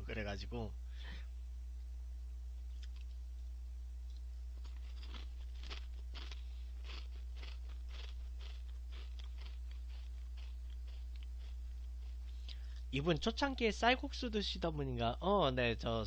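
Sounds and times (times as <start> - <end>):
steady low hum: 0.0 - 16.0
crackers crunched and chewed: 2.7 - 3.2, 4.1 - 12.6.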